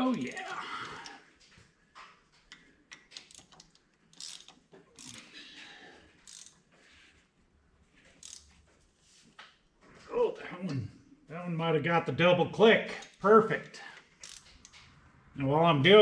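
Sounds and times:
hand ratchet clicking: 0.0s - 1.1s, 2.9s - 5.3s, 6.2s - 6.6s, 8.2s - 8.5s, 13.0s - 14.8s.

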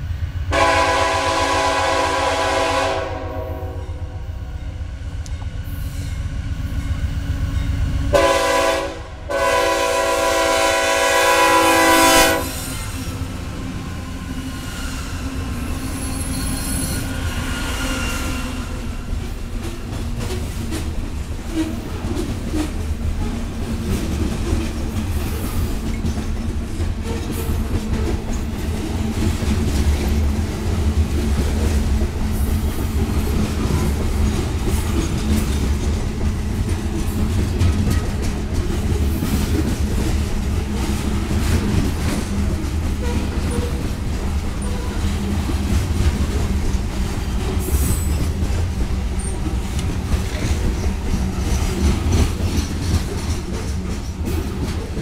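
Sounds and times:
train rumbling past: 0.0s - 55.0s
wheels clicking over rail joints: 19.2s - 55.0s.

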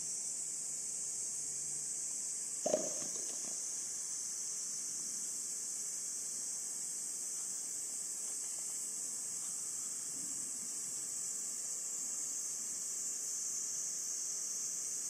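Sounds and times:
high-pitched hiss: 0.0s - 15.0s
brief knock: 2.7s - 3.5s.

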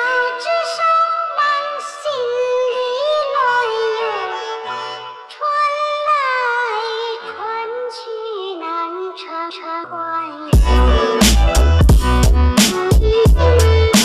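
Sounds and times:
song with singing voice: 0.0s - 14.0s.

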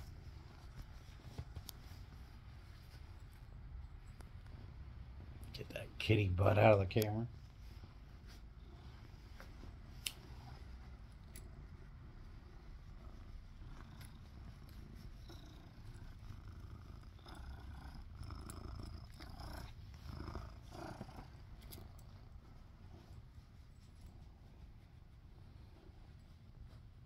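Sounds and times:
rustling: 0.0s - 27.0s
kitten purring: 8.4s - 25.0s.

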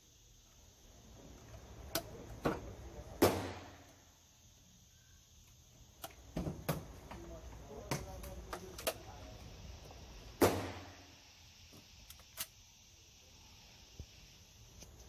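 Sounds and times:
sharp crack with echo: 3.2s - 3.9s, 10.4s - 11.0s.

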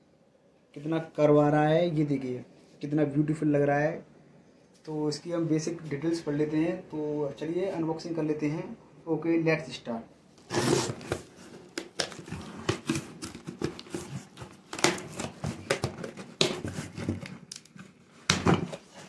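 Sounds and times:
cardboard flaps scraping: 10.4s - 17.3s.

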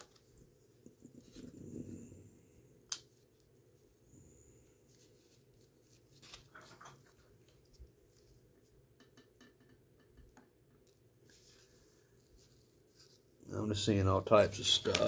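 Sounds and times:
soft handling noise: 4.6s - 9.1s, 10.7s - 13.4s, 14.3s - 15.0s.

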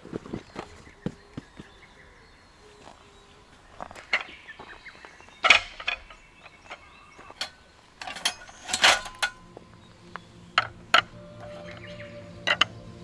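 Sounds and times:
clinks and knocks of camping gear: 2.7s - 13.0s.

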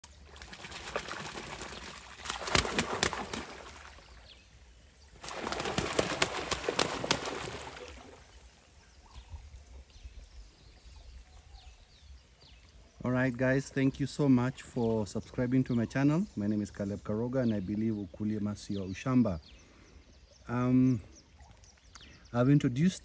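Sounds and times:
ducks splashing and flapping wings: 0.0s - 4.3s, 5.1s - 8.5s
ducks dabbling in water: 0.0s - 8.8s.

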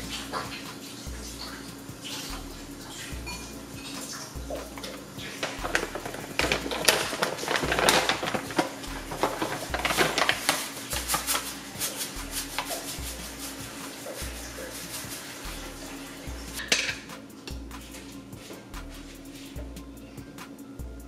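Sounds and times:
background music with deep bass: 0.0s - 21.0s
plastic pouch crinkling: 5.3s - 13.6s.

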